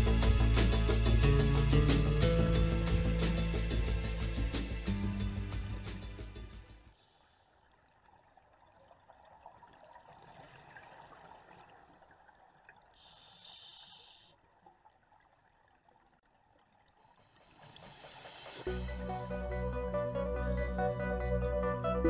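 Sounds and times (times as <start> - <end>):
underwater air bubbling: 8.0 - 16.2
brief bright hiss: 17.2 - 18.9.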